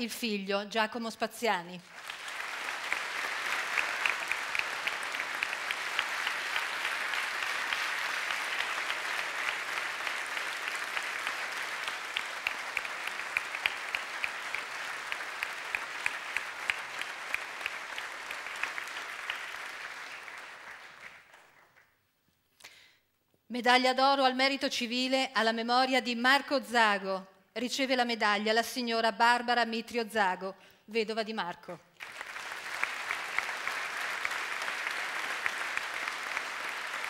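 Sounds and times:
audience applauding: 1.8s - 21.9s, 32.0s - 37.0s.

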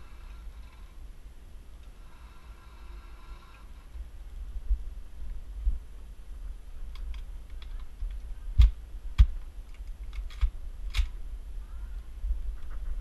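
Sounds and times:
low rumble: 0.0s - 13.0s
rifle handling clicks and rattles: 6.8s - 11.2s.

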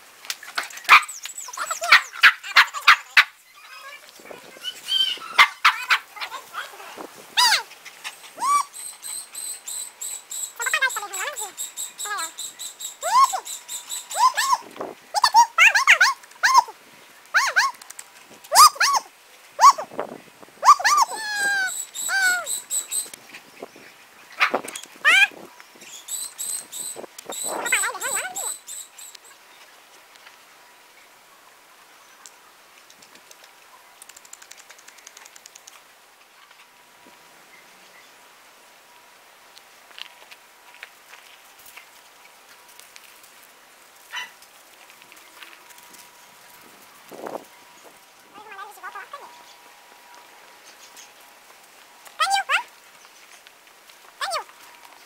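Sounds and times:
dogs yelping and whining: 0.7s - 3.8s, 4.6s - 6.5s, 7.4s - 16.8s, 17.4s - 17.8s, 18.5s - 19.9s, 20.6s - 23.1s, 26.2s - 29.2s.

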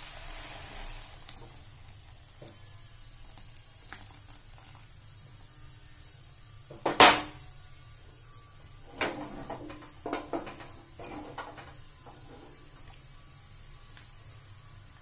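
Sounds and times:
spoon knocking and scraping a pan: 6.7s - 7.4s, 8.9s - 12.3s.

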